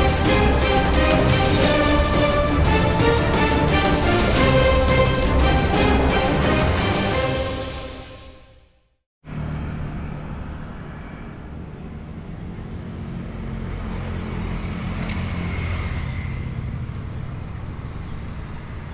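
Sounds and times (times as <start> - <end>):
road traffic rumble: 0.0 - 7.9, 9.2 - 18.9.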